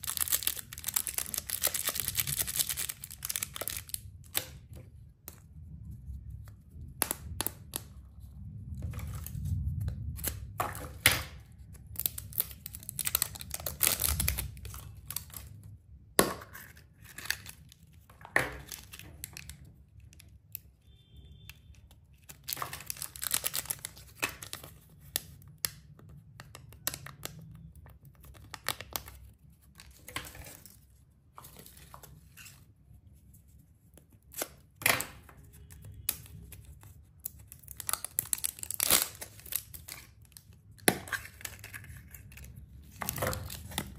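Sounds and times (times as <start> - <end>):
plastic wrappers crinkling and tearing: 0.0 - 4.7, 11.5 - 15.6, 16.6 - 20.5, 21.8 - 25.4, 35.4 - 43.9.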